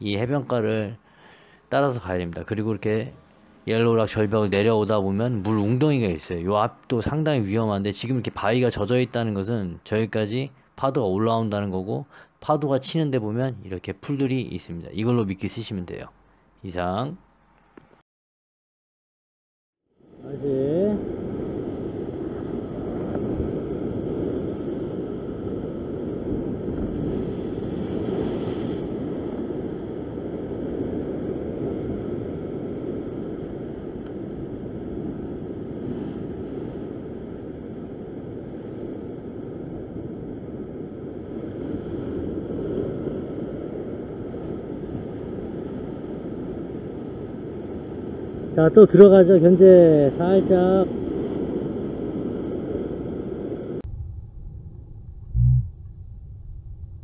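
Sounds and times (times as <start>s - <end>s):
ocean swell washing against rocks: 20.1s - 53.8s
wind buffeting microphone: 20.2s - 48.6s.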